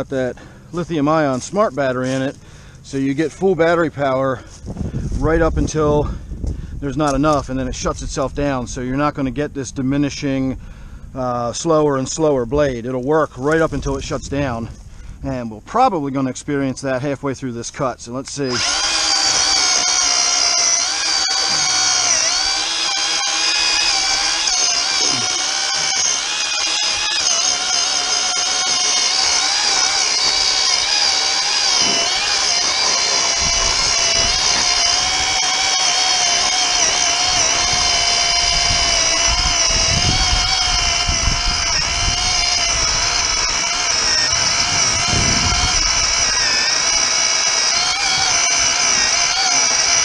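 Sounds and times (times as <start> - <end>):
electric chainsaw cutting log: 0.0 - 3.8, 18.3 - 50.0.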